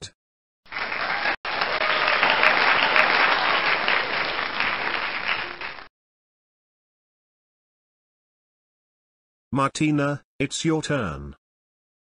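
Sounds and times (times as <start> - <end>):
crowd applause: 0.7 - 5.9.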